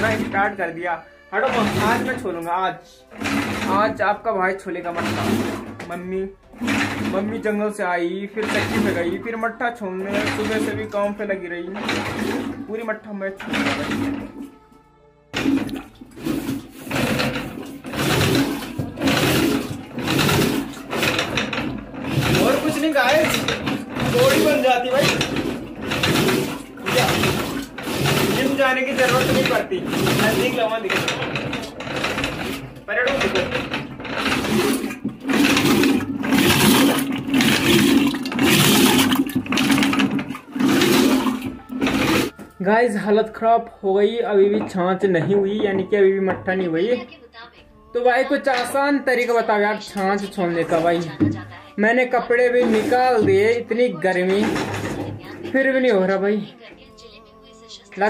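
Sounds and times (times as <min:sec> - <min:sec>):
churning stick whirring and sloshing: 0:00.0 - 0:00.6, 0:01.4 - 0:02.4, 0:03.1 - 0:04.2, 0:04.8 - 0:14.5, 0:15.4 - 0:42.5, 0:52.4 - 0:56.2.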